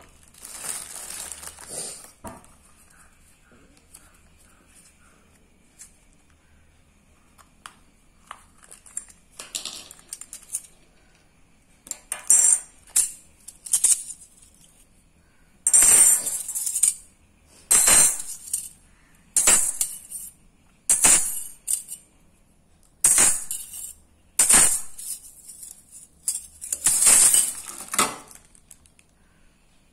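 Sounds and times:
metal discs clinking: 11.9 - 14.8, 15.7 - 17.0, 17.7 - 18.8, 19.4 - 22.1, 23.0 - 28.6.

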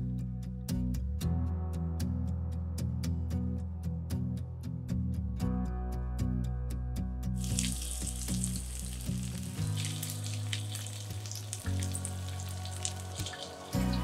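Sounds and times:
broccoli sizzling in oil: 7.4 - 14.0.

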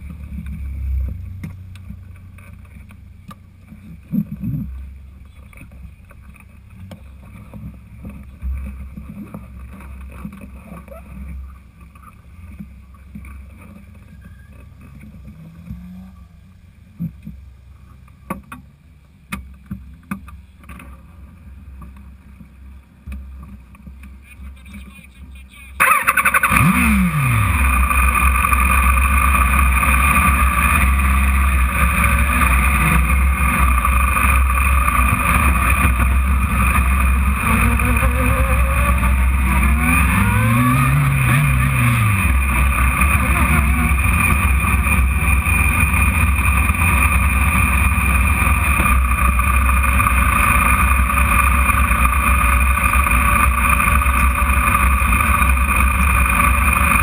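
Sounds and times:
sports car engine drone: 0.0 - 57.0.

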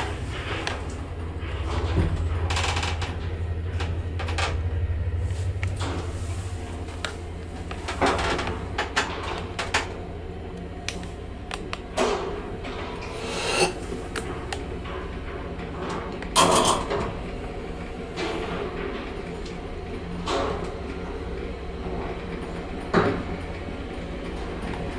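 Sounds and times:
low steady hum: 0.0 - 9.4.

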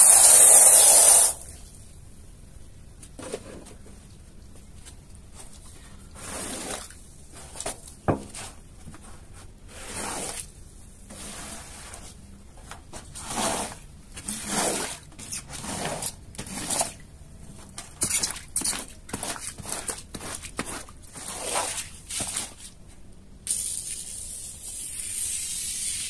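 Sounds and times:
squeegee scraping wet carpet: 6.2 - 8.6, 9.7 - 10.5, 11.1 - 12.2, 13.0 - 17.0, 17.7 - 22.8.

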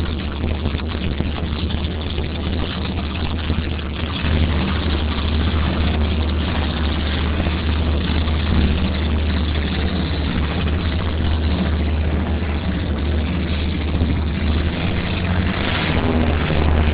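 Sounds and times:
low engine rumble: 0.0 - 16.9
rushing water: 0.0 - 16.9
rushing wind: 0.0 - 16.9.

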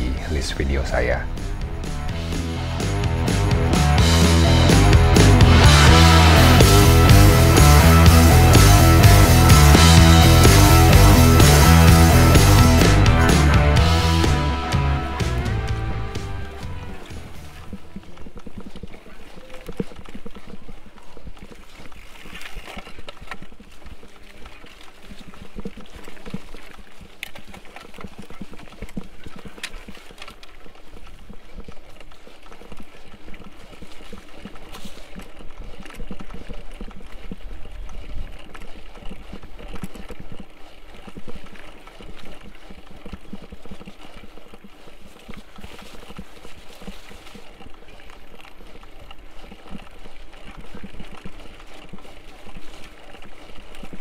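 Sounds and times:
tyres crunching over stones: 0.0 - 54.0
bike frame and chain rattling: 16.9 - 54.0.

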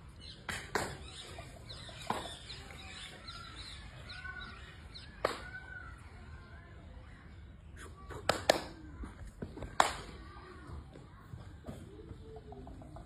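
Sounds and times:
birds chirping: 0.0 - 9.2.

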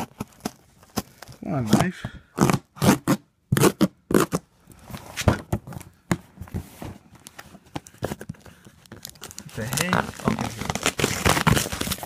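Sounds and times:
packaging rustle: 7.2 - 12.0.

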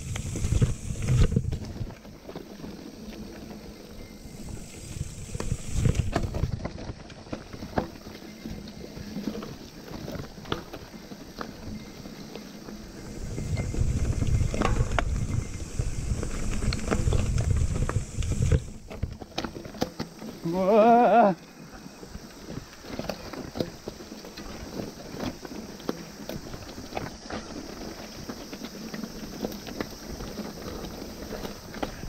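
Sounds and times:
wind rumble on camera: 0.0 - 2.4, 3.2 - 19.7
bike rattles and clicks: 0.0 - 32.0.

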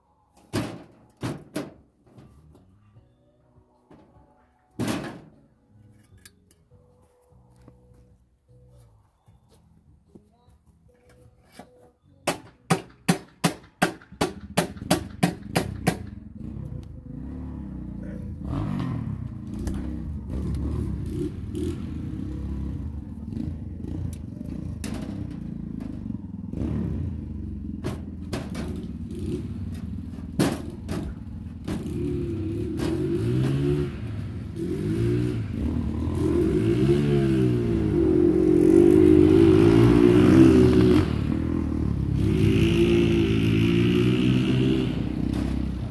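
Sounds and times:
sharp evenly spaced knocks: 12.3 - 16.1
small engine revving: 15.6 - 28.0, 28.6 - 45.9.

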